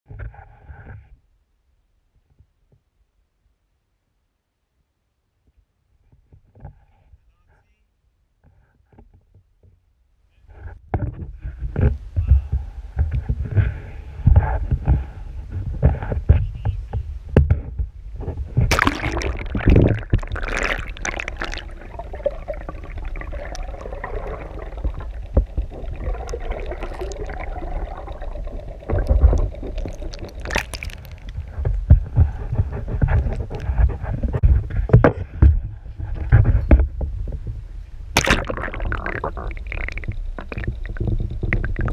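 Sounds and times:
low rumbling: 18.0s - 41.9s
muffled water sloshing: 18.5s - 34.4s, 38.1s - 41.9s.

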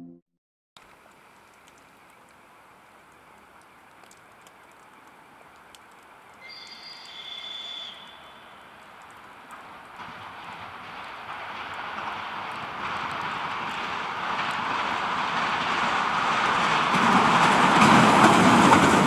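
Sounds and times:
light clicks: 0.8s - 6.4s
faint steady hiss: 0.8s - 10.0s.

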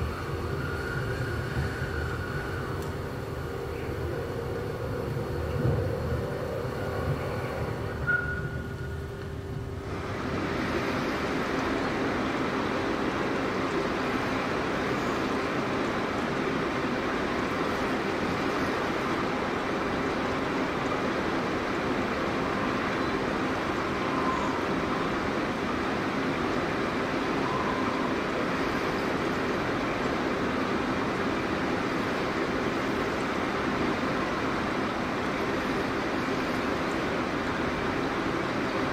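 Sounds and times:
faint steady tones: 0.0s - 38.9s
stream water rushing: 9.7s - 38.9s.

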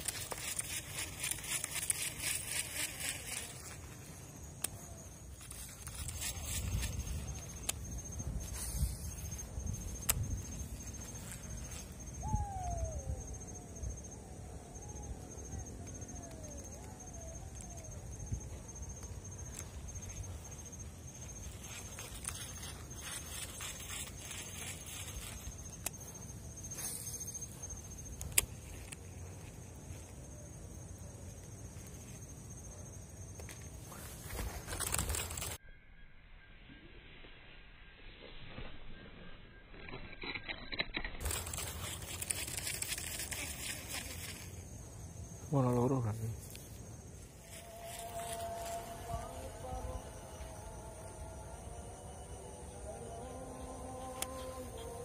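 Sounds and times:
insect chirring: 0.0s - 55.0s
wind rumbling on microphone: 4.8s - 26.7s
falling whistled bird calls: 6.8s - 14.1s.

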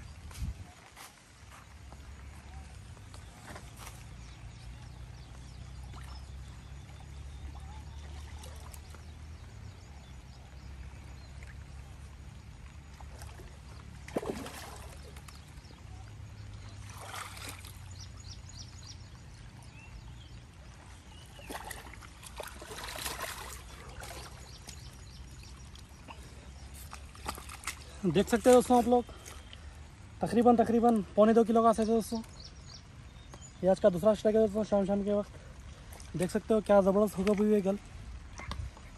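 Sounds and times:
fish splashing in water: 5.7s - 9.5s, 12.6s - 18.2s, 20.9s - 28.0s.

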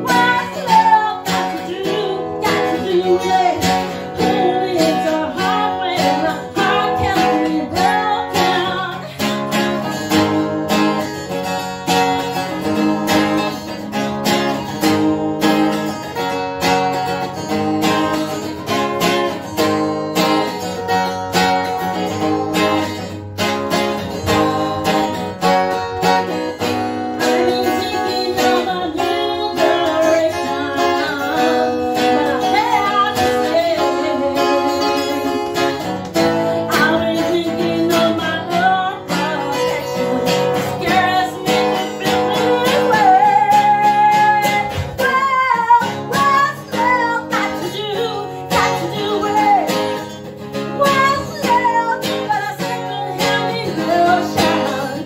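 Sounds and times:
person singing: 0.0s - 11.0s, 27.1s - 55.0s
strummed acoustic guitar: 0.0s - 55.0s.

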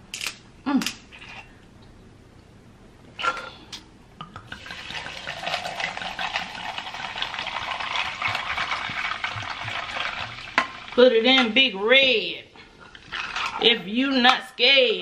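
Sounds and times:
sparkling water pouring and fizzing: 4.5s - 11.0s.

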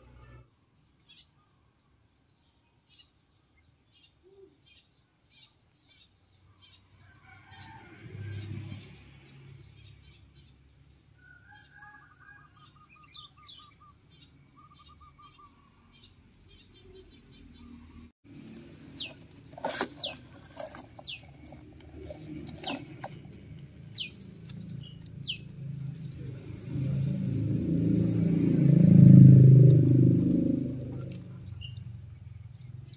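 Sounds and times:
bird trill: 11.4s - 18.0s
low rumble: 23.3s - 32.9s.

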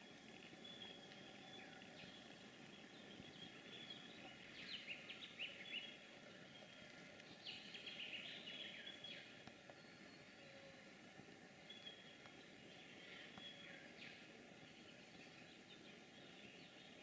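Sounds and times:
soft outdoor hiss: 0.0s - 17.0s
faint bird chirps and whistles: 7.4s - 10.8s, 11.6s - 17.0s.

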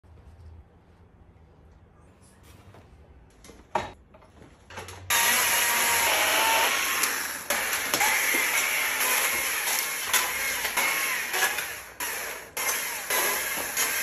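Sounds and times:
chainsaw cutting wood: 5.1s - 14.0s.

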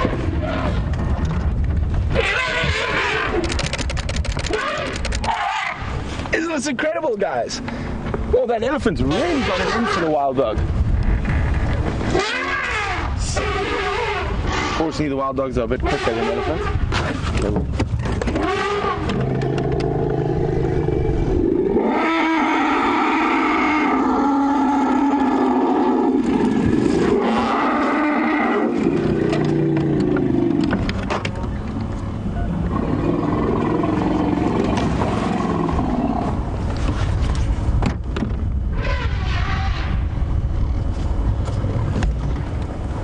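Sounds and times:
elephants trumpeting: 2.1s - 3.6s, 4.4s - 5.9s, 9.1s - 10.3s, 12.1s - 15.0s, 15.8s - 17.2s, 18.3s - 30.7s, 38.7s - 40.1s.

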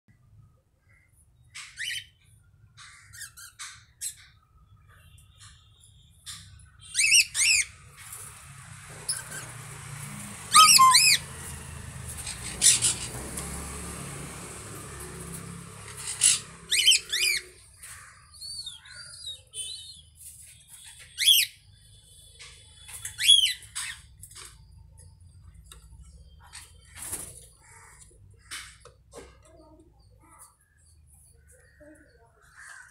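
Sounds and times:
parrots shrill calls: 6.8s - 7.7s, 10.5s - 11.3s, 12.2s - 13.2s, 15.8s - 17.6s, 23.0s - 24.0s
parrots soft chirps: 10.5s - 11.3s.

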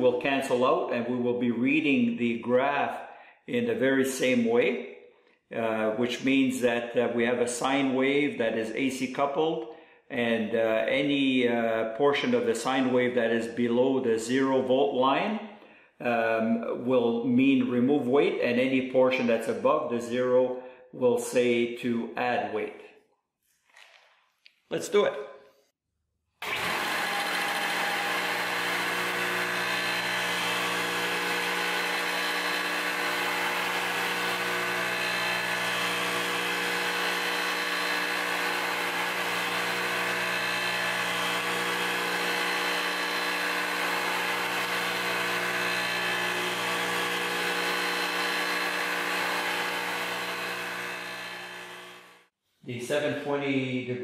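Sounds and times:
electric motor humming: 26.4s - 52.3s.

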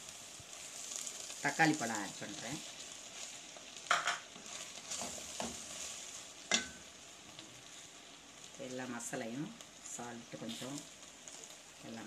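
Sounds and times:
vegetables sizzling in a pan: 0.0s - 12.0s
wooden spatula scraping a pan: 2.2s - 6.7s.

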